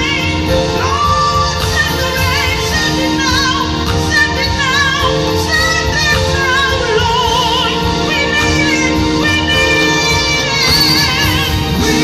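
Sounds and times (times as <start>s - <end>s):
keyboards: 0.0s - 12.0s
live band: 0.0s - 12.0s
gospel choir singing: 4.6s - 12.0s.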